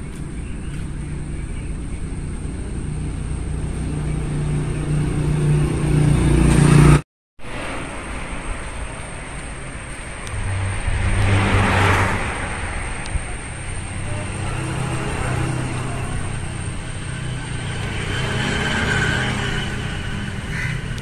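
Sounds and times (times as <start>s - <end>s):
road traffic: 0.0s - 21.0s
vehicle passing: 0.0s - 21.0s.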